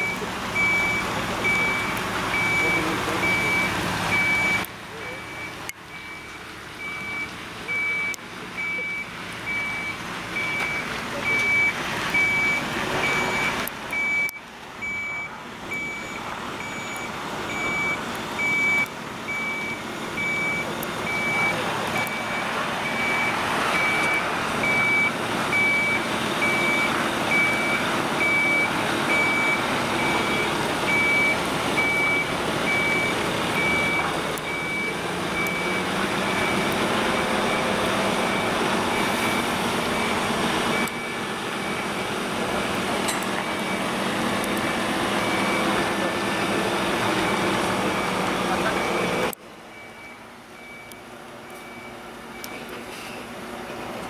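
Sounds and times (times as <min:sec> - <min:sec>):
truck warning beeper: 0:00.0 - 0:53.3
diesel truck engine: 0:00.0 - 0:54.0.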